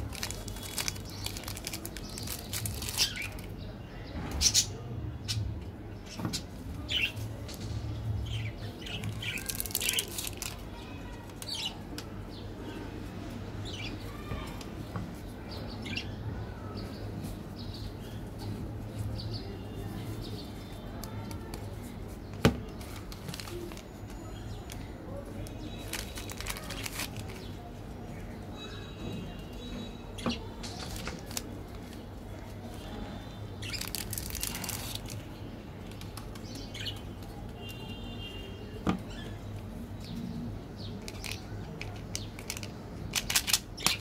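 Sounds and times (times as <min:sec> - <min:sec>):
foil wrapper crinkling and tearing: 0:00.0 - 0:03.5, 0:08.8 - 0:11.7, 0:22.6 - 0:27.7, 0:30.6 - 0:32.5, 0:33.6 - 0:36.9, 0:41.0 - 0:44.0.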